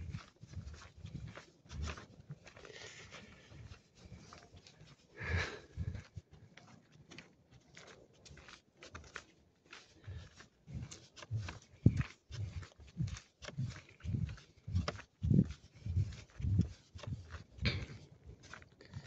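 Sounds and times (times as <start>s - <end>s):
footsteps on dirt path: 0.0s - 19.0s
handheld phone rustling: 5.4s - 19.0s.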